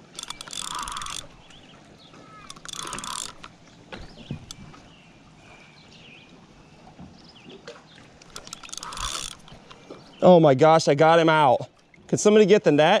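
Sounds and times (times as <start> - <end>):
fishing reel clicking: 0.0 - 1.5, 2.4 - 3.6, 8.2 - 9.6.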